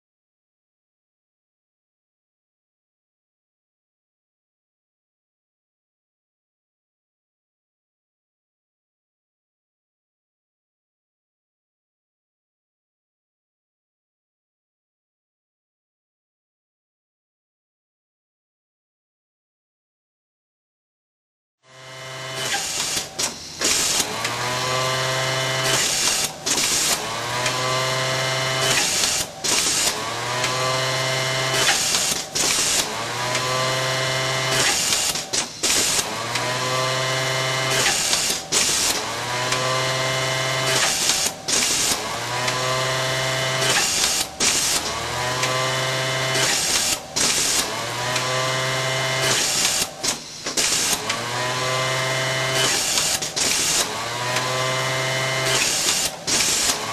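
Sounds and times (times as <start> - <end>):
sewing machine motor whine: 21.7 - 56.9.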